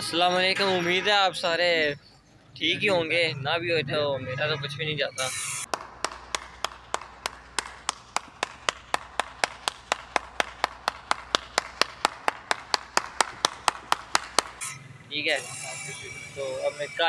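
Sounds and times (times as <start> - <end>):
person clapping hands: 5.7 - 14.6.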